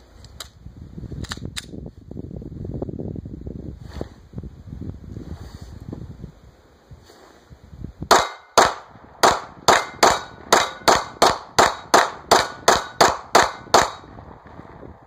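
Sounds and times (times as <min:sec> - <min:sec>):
pistol shots: 0:08.1 - 0:14.5.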